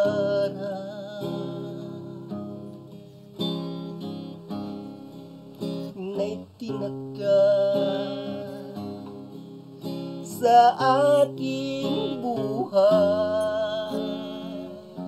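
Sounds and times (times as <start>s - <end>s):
acoustic guitar strumming chords: 0.0s - 15.0s.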